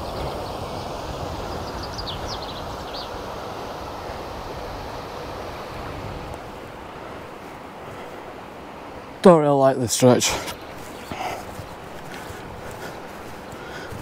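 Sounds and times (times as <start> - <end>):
wind buffeting microphone: 0.0 - 9.2, 10.2 - 14.0
small bird chirping: 1.5 - 3.2.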